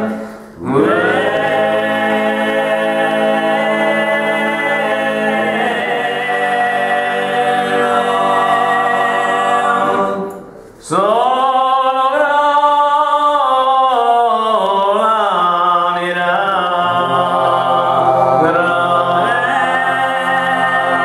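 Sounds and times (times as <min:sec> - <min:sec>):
men singing in close harmony: 0:00.0 - 0:21.0.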